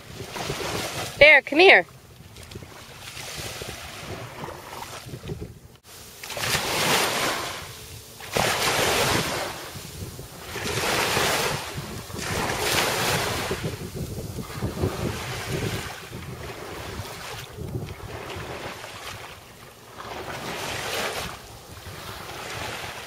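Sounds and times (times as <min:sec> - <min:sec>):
wind on microphone: 0:00.0 - 0:23.0
ocean surf: 0:05.9 - 0:23.0.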